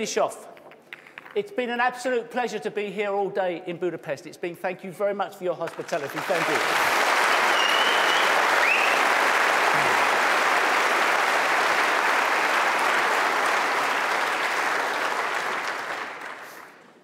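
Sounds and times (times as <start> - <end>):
large audience applauding: 5.6 - 17.0.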